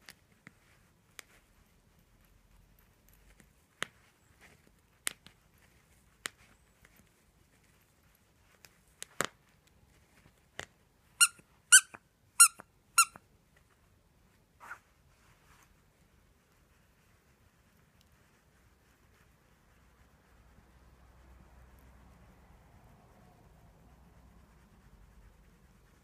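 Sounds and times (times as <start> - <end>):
dog toy squeaking: 11.2 - 13.2.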